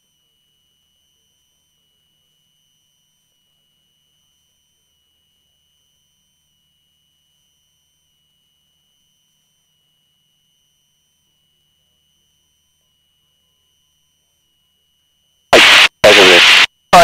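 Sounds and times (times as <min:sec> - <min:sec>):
faint high-pitched whine: 0:15.6 - 0:17.0.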